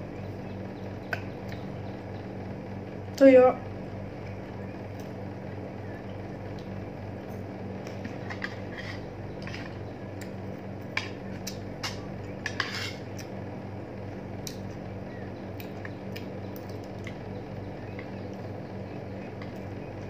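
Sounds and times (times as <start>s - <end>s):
low hum: 0.0s - 20.0s
cutlery scraping on a plate: 8.0s - 9.8s, 11.8s - 13.1s.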